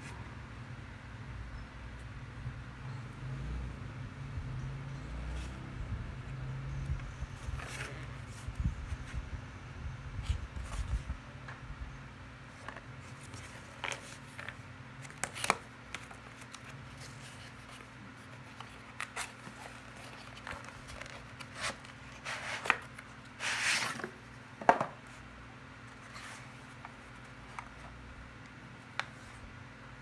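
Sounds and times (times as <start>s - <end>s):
cardboard being handled: 12.5s - 25.3s.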